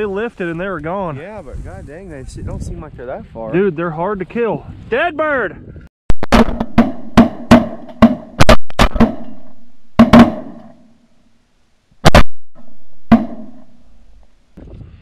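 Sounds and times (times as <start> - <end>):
shotgun shots: 6.2 - 10.8, 12.0 - 12.4.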